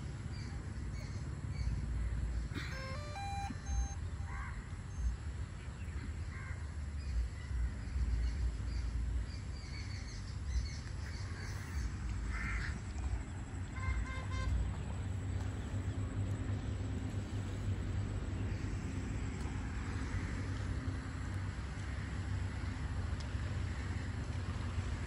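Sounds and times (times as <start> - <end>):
short electronic beeps: 2.6 - 4.3
crows cawing: 12.3 - 12.8.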